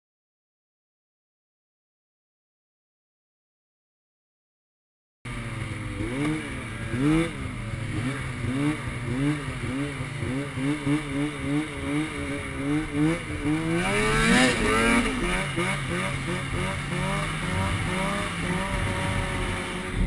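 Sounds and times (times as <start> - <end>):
snowmobile engine revving: 5.3 - 20.0.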